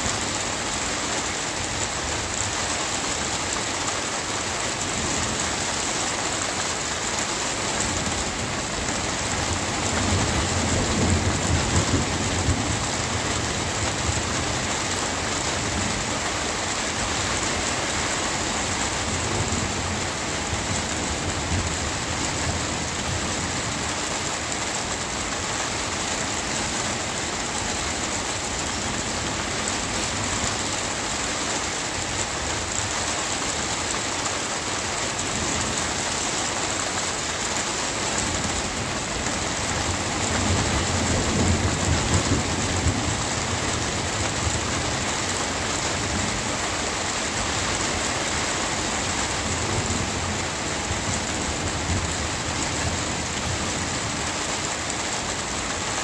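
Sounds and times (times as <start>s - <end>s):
steady rain: 0.0s - 56.0s
thunder rumbling: 8.0s - 14.8s, 38.2s - 46.7s.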